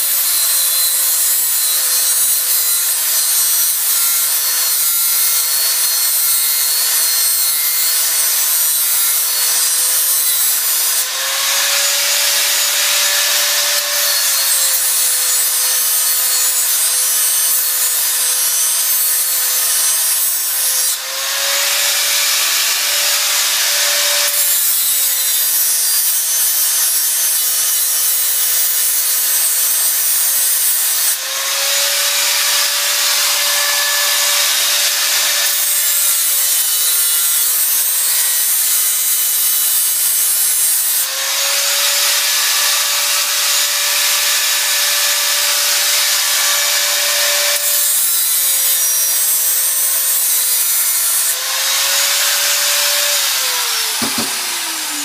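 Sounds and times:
angle grinder grinding metal: 0.0 - 55.0.

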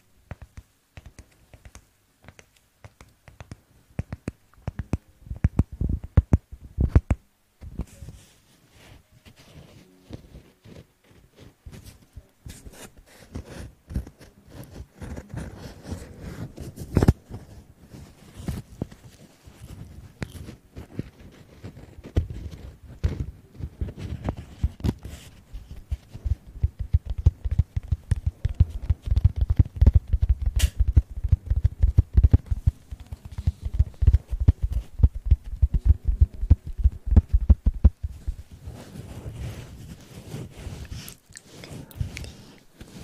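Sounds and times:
fluffy object rubbing microphone: 28.5 - 43.0.

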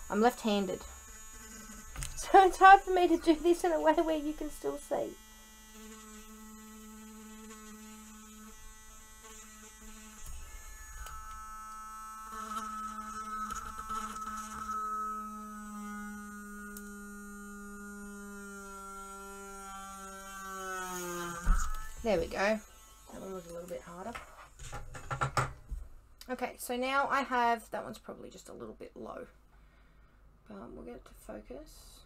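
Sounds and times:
mini drill motor whine: 0.0 - 24.0.

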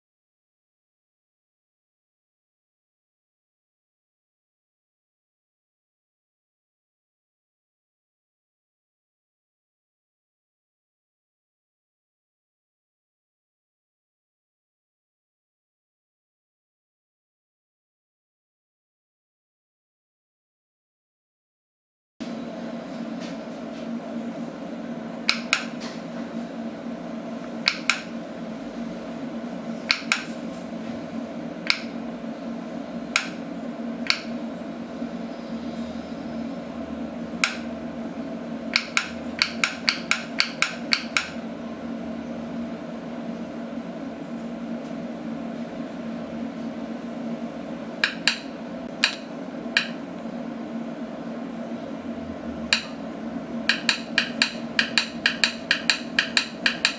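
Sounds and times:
steady low hum: 22.2 - 56.9
wireless switch clicks: 25.3 - 25.8, 27.6 - 28.1, 29.9 - 30.3, 31.6 - 31.9, 33.1 - 33.4, 34.0 - 34.3, 37.4 - 37.7, 38.7 - 41.4, 48.0 - 50.0.

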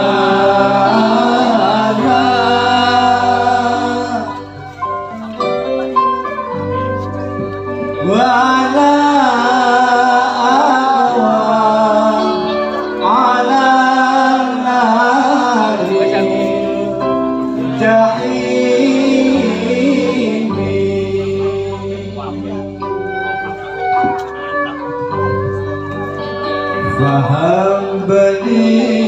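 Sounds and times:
person singing devotional song: 0.0 - 4.8, 7.9 - 22.5, 26.8 - 29.0
instrumental ensemble accompaniment: 0.0 - 29.0.

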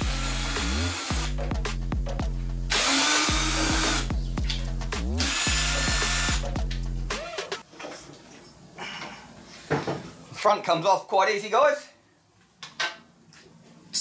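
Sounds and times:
cordless drill running: 0.0 - 1.3, 2.7 - 4.1, 5.2 - 6.4.

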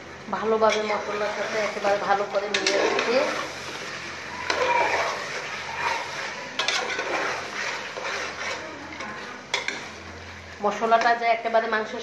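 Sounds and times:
metal spatula scraping pot: 0.6 - 10.1.

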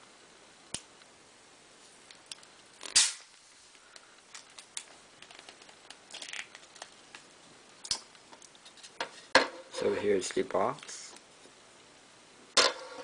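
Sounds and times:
plastic packaging snap: 7.8 - 8.5.

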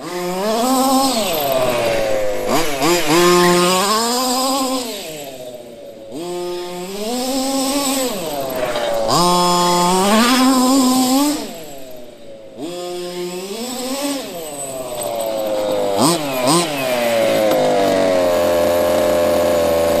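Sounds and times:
small gas engine revving: 0.0 - 20.0.

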